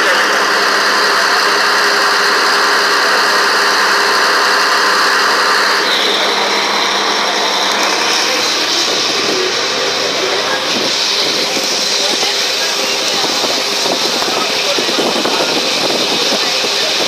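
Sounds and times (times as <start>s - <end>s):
ferry engine running: 0.0s - 17.0s
hiss of water and wind: 5.8s - 17.0s.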